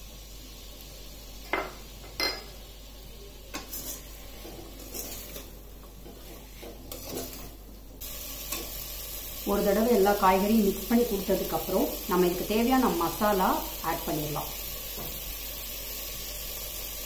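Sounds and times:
vegetables sizzling in oil: 0.0 - 17.0
metal spatula scraping a pan: 3.5 - 8.9.

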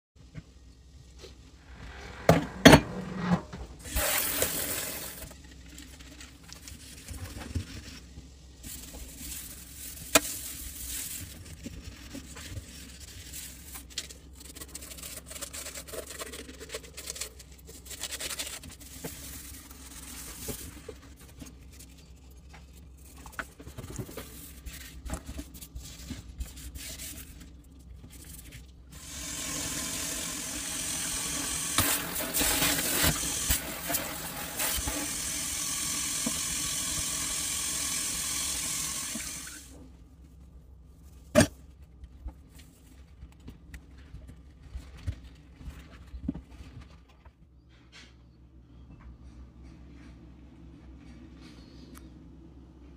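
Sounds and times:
faucet running: 29.0 - 39.6.

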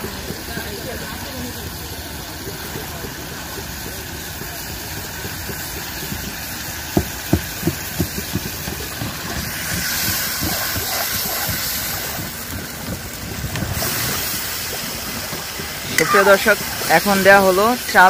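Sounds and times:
hiss: 0.0 - 18.0
knocks on cooking pot: 7.0 - 9.1.

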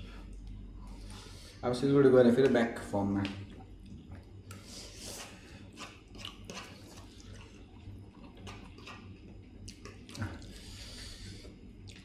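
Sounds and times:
steady low hum: 0.0 - 12.0
chewing and slurping: 3.5 - 12.0.

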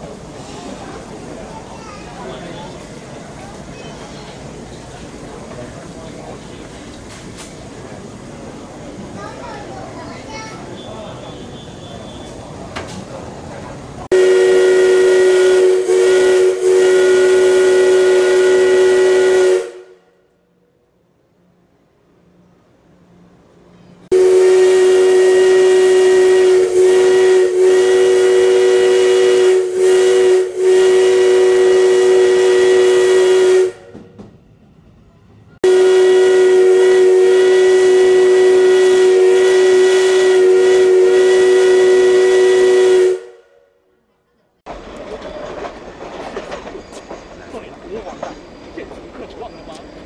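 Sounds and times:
steam locomotive whistle blasts: 14.1 - 20.2, 24.1 - 34.1, 35.6 - 43.7.

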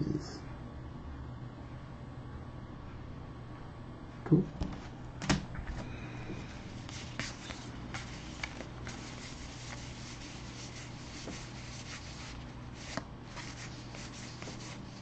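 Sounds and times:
low steady hum: 0.0 - 15.0
cardstock rubbing and brushing: 6.8 - 15.0.

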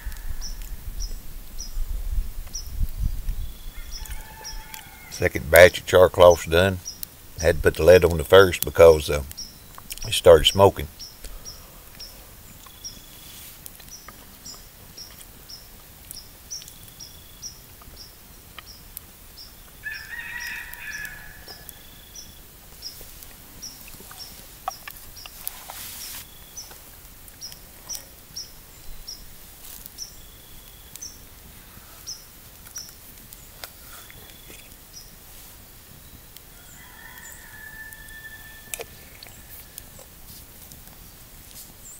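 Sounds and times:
birds chirping: 2.5 - 35.2.

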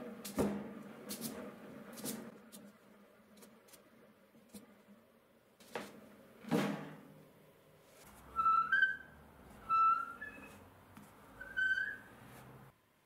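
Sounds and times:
piano stool seat squeaking: 8.2 - 10.7.

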